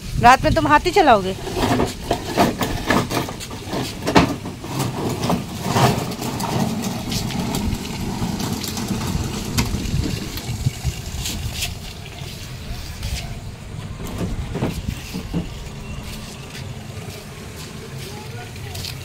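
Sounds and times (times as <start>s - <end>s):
plastic wheels rolling on concrete: 0.0s - 19.0s.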